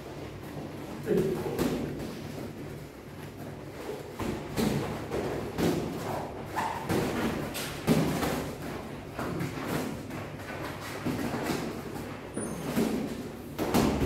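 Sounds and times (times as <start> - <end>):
boxing gloves thudding: 12.8 - 14.0.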